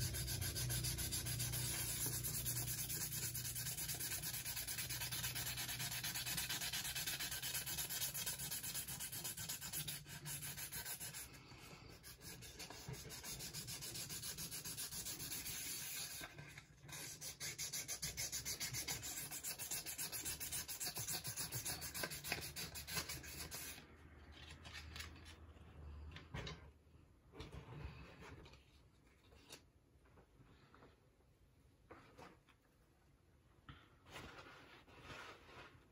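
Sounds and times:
sandpaper rubbing on metal: 0:00.0 - 0:11.3, 0:12.0 - 0:16.3, 0:16.9 - 0:23.8
faint handling sounds: 0:23.8 - 0:35.9.

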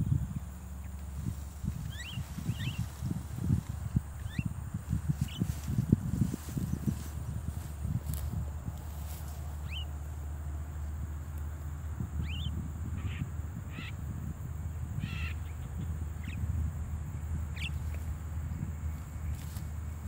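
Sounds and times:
mynas giving short rising calls: 0:00.0 - 0:10.3
steady low rumble: 0:00.0 - 0:20.0.

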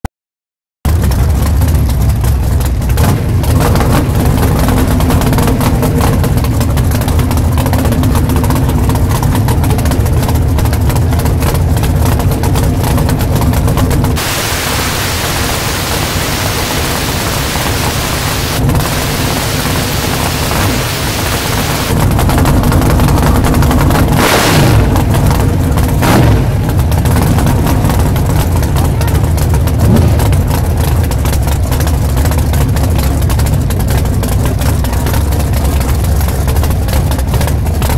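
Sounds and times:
race engine idling loudly: 0:00.9 - 0:37.9
loud steady hiss: 0:14.2 - 0:22.0.

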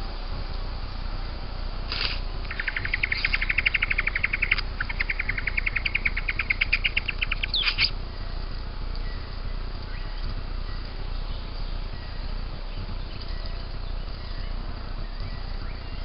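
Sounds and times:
bird churring call: 0:02.5 - 0:08.3.

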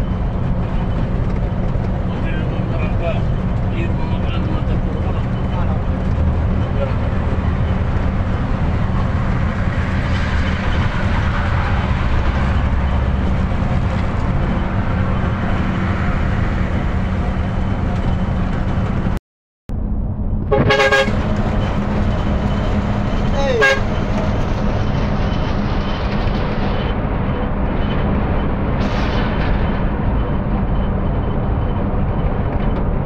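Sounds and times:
bus engine droning: 0:00.0 - 0:33.0
road noise: 0:00.0 - 0:33.0
horn honking: 0:20.4 - 0:21.5, 0:23.4 - 0:24.1.

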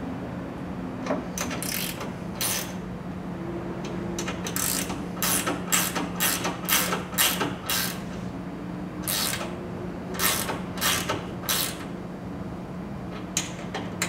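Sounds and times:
steady low hum: 0:00.0 - 0:14.0
hand ratchet clicking: 0:01.4 - 0:02.7, 0:04.2 - 0:08.0, 0:09.0 - 0:09.5, 0:10.2 - 0:11.9.

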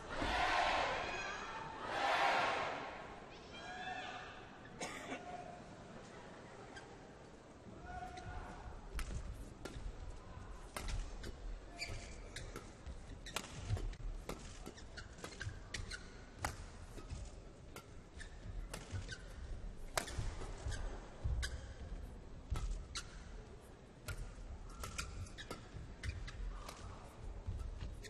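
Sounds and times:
shoes squeaking on court: 0:08.1 - 0:28.0
rackets striking shuttlecock: 0:10.7 - 0:21.6, 0:24.0 - 0:28.0.

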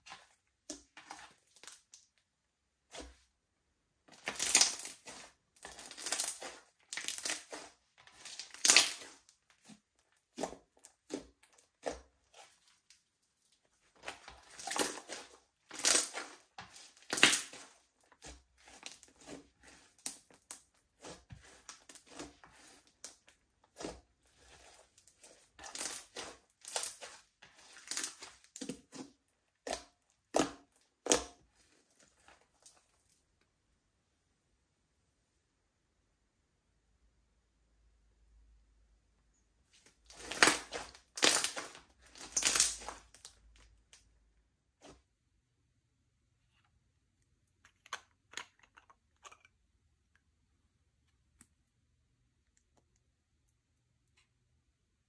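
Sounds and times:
slime squishing and crackling: 0:04.1 - 0:33.0, 0:39.8 - 0:43.9.

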